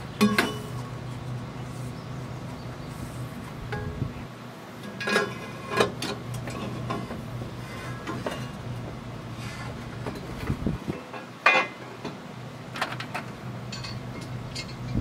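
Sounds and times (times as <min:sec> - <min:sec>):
metal clinking and clanking: 0:00.2 - 0:00.9, 0:04.8 - 0:07.2, 0:07.9 - 0:08.6, 0:10.0 - 0:15.0.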